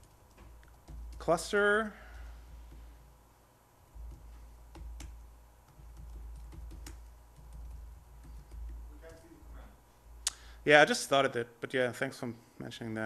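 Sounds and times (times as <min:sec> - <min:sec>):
laptop keyboard typing: 0:00.0 - 0:03.1, 0:03.9 - 0:09.5.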